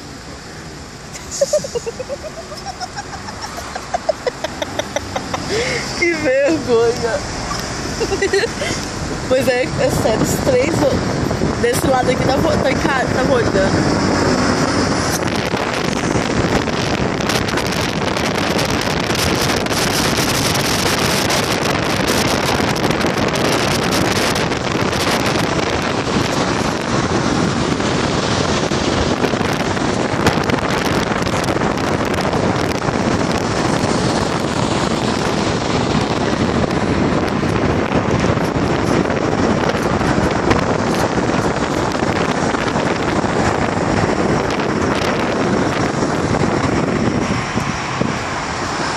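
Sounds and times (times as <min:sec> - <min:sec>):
car road noise: 0:00.0 - 0:48.9
wind buffeting microphone: 0:00.0 - 0:48.9
wind rushing past car: 0:00.0 - 0:48.9.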